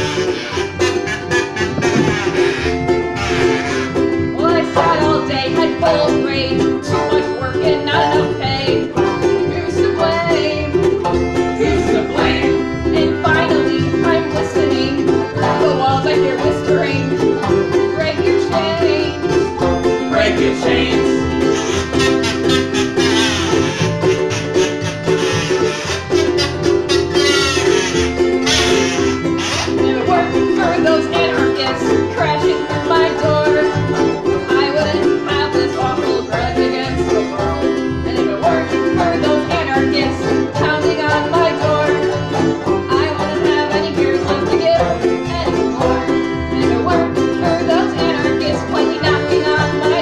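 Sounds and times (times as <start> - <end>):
accordion chords: 0.0 - 50.0
banjo picking: 0.0 - 50.0
ukulele strumming: 0.0 - 50.0.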